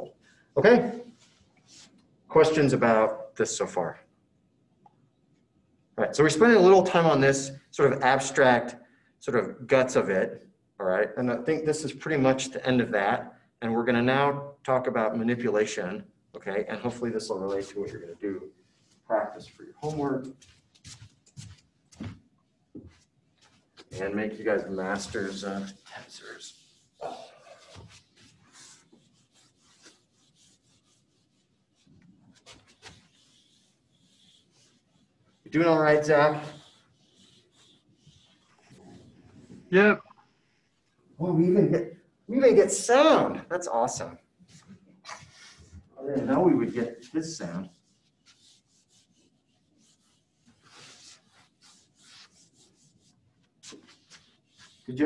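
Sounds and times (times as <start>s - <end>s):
writing scratching on a board: 23.8s - 39.6s, 45.1s - 55.0s.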